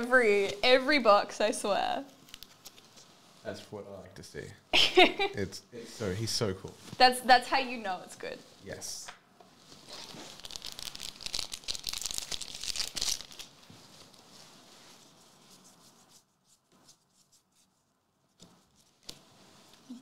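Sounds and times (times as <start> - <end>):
foil wrapper tearing and crinkling: 9.8 - 13.6.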